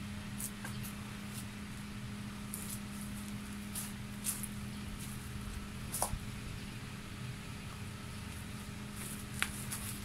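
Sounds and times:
rustling through dry brush: 2.4s - 6.2s, 8.2s - 10.0s.

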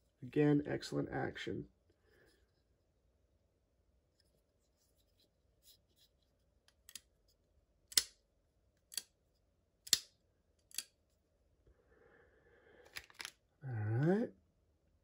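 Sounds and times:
folding knife clicking: 7.9s - 8.2s, 8.9s - 9.1s, 9.8s - 10.1s, 10.7s - 11.0s.

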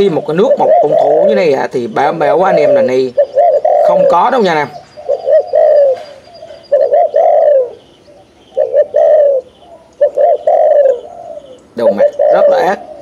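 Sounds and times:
dove cooing: 0.0s - 13.0s.

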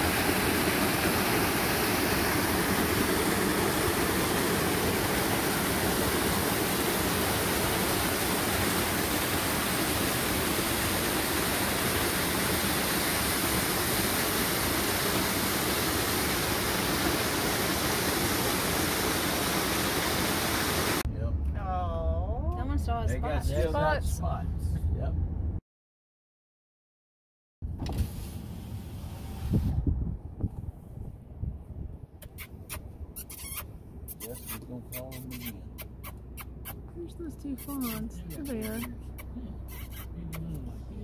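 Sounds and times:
waterfall rushing: 0.0s - 21.0s.

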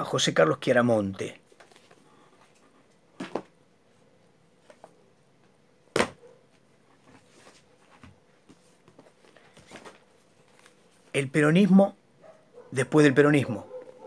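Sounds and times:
book rustling: 1.5s - 2.6s, 6.5s - 11.1s
book knocking on desk: 5.9s - 6.2s
faint shuffling: 6.3s - 11.3s.

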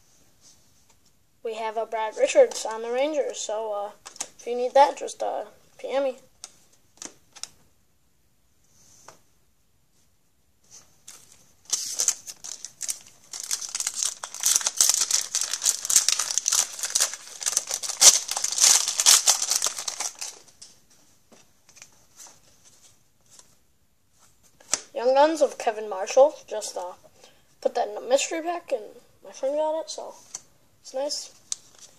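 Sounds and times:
wrapper tearing and crinkling: 11.1s - 20.6s.

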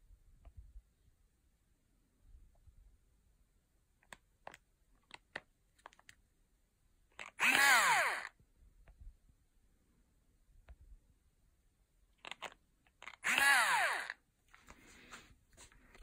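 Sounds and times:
screwdriver handling clicks: 7.2s - 8.3s, 12.2s - 14.2s
screwdriver motor whirring: 7.2s - 8.4s, 13.0s - 14.2s.

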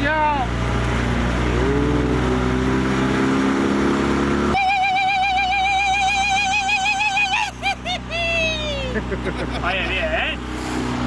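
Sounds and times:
outboard motor revving: 0.0s - 11.0s.

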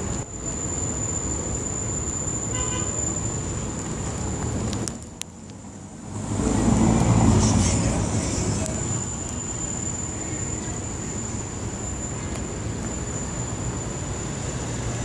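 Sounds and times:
steady traffic noise: 0.0s - 15.0s
vehicle passing close by: 5.8s - 9.0s.

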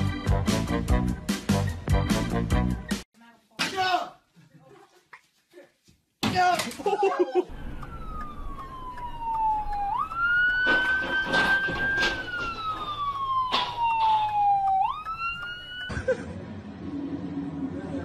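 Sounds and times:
police siren wailing: 7.5s - 15.9s
car crash crunching: 10.4s - 14.6s.

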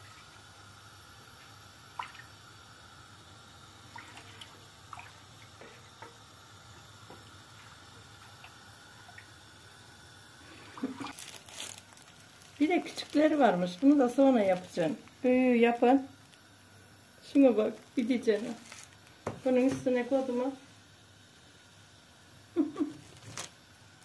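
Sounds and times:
plastic wrap crinkling: 10.9s - 15.3s, 17.7s - 20.3s, 22.8s - 23.6s.

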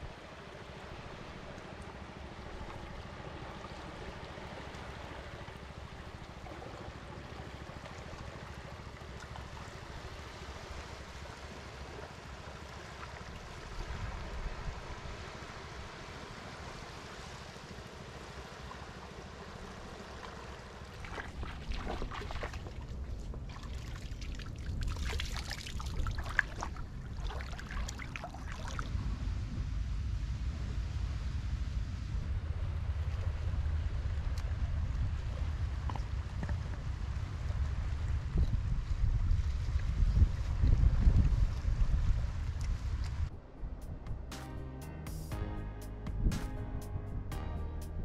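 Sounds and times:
water trickling over rocks: 20.2s - 28.9s
low rumble: 28.7s - 48.0s.

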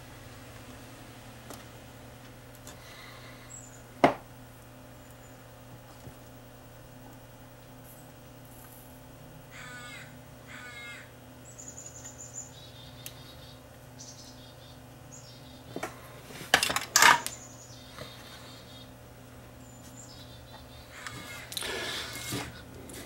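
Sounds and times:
low electrical hum: 0.0s - 23.0s
harsh caw-like bird calls: 9.5s - 15.6s, 17.4s - 19.0s, 20.1s - 22.4s.

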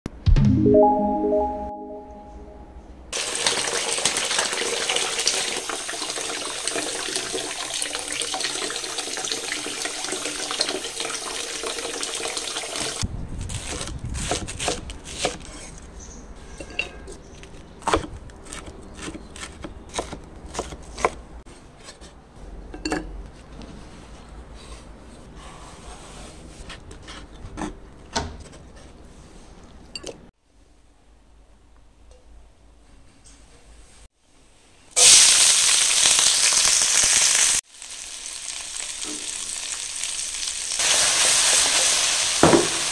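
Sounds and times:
water running from a tap: 3.2s - 13.0s
cleaver chopping on wooden board: 17.8s - 21.2s.

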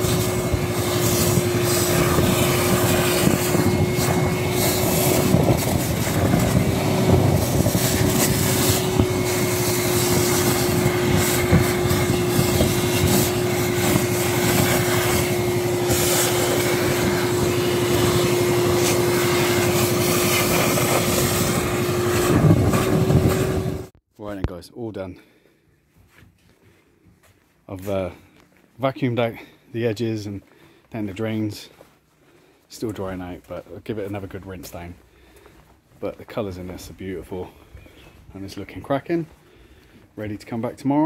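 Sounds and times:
debris crackling through hose: 0.0s - 22.5s
gutter vacuum whining: 0.0s - 24.0s.

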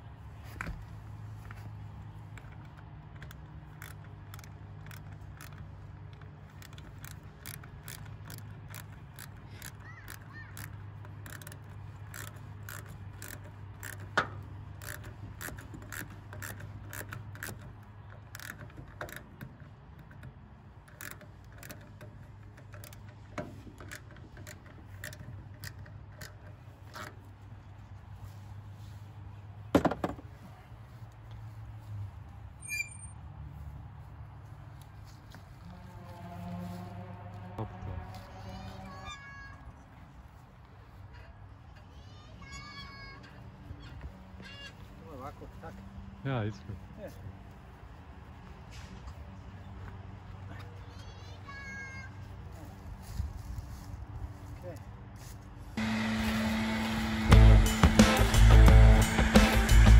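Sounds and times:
small metallic clicks: 0.4s - 28.5s, 57.6s - 59.9s.

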